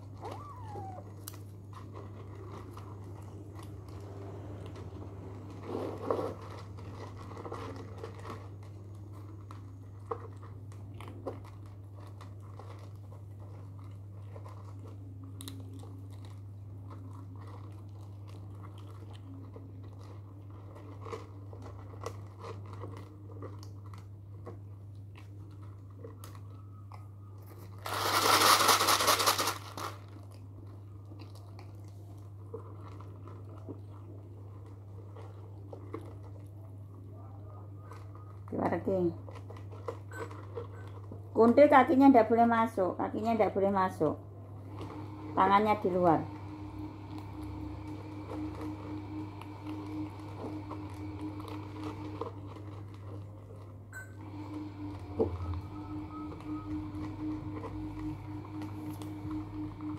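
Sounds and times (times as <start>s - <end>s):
cats crunching dry food: 0.0s - 41.4s, 44.5s - 59.9s
low hum: 44.1s - 59.9s.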